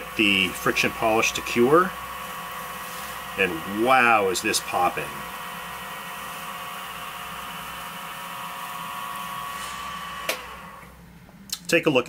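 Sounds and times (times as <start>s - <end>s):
wood lathe motor whine: 0.0s - 11.2s
paper towel hissing on wood: 2.8s - 3.2s.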